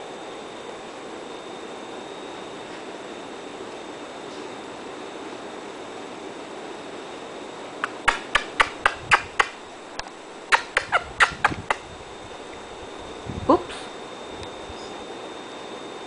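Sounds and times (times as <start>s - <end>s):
puppy claws clicking and tapping: 7.8s - 11.8s.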